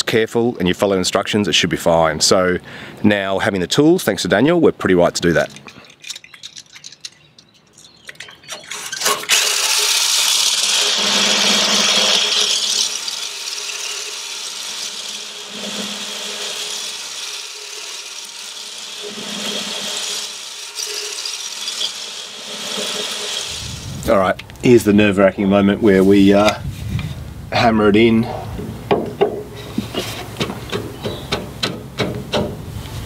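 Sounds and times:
power drill grinding scrape: 8.7s - 24.4s.

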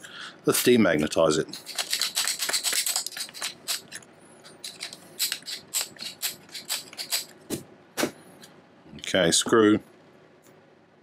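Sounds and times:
metal clicking and scraping: 1.6s - 7.3s.

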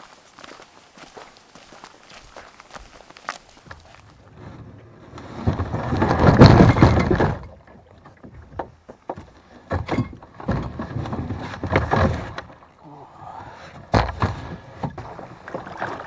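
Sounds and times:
kayak hull scraping over sand: 3.8s - 7.5s, 10.4s - 12.6s, 14.2s - 16.0s.

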